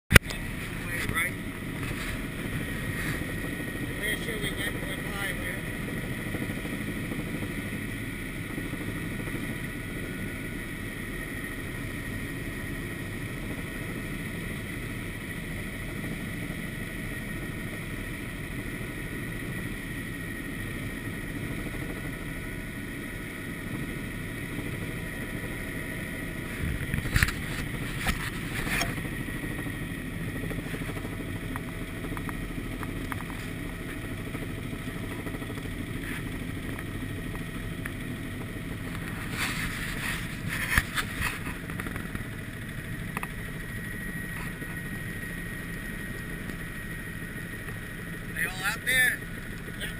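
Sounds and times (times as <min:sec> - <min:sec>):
helicopter engine and rotor: 0:00.1 - 0:49.9.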